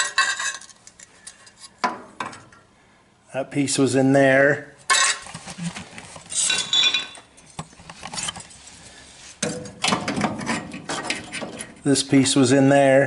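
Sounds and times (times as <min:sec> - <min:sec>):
sheet steel pieces clinking: 0:00.0 - 0:01.6, 0:04.9 - 0:05.2, 0:06.4 - 0:07.5.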